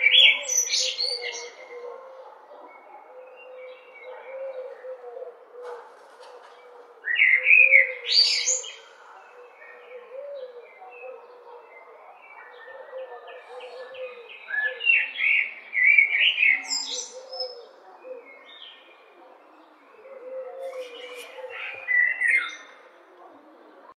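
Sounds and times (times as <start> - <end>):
blackbird singing: 0.0 - 1.8, 7.0 - 22.9.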